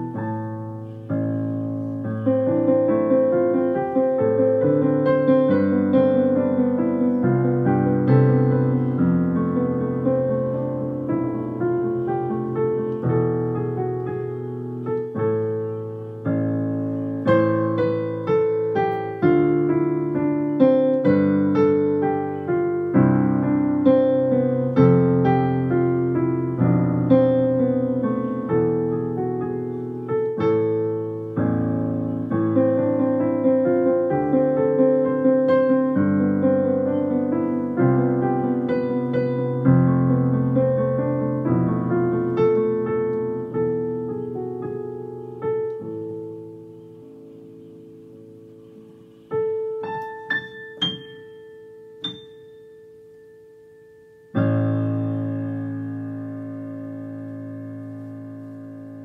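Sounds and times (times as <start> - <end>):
digital piano playing: 0.0 - 59.0.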